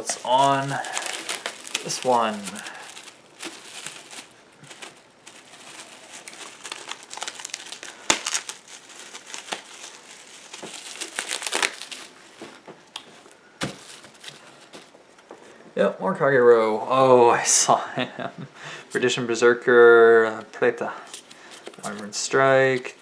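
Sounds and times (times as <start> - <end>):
trading cards rustling: 0.0 - 14.9, 21.1 - 23.0.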